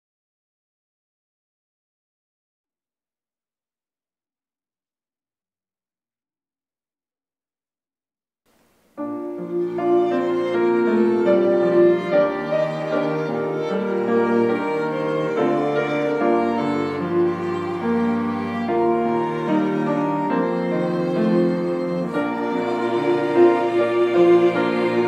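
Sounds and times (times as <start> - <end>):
chamber ensemble playing slowly: 9.0 - 25.0.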